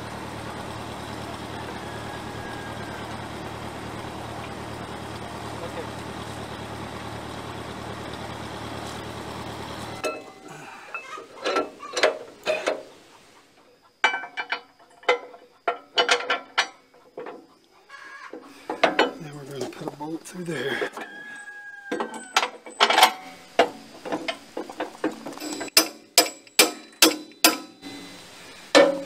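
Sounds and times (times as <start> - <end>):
tractor engine idling: 0.0 - 17.7, 18.3 - 21.4, 22.0 - 29.0
metal clanks and knocks: 10.9 - 12.9, 14.0 - 17.5, 18.3 - 19.8, 21.9 - 27.8, 28.7 - 29.0.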